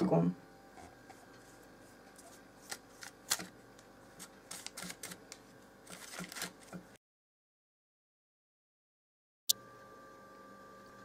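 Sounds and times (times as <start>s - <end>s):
parchment paper rustling: 1.1s - 7.0s.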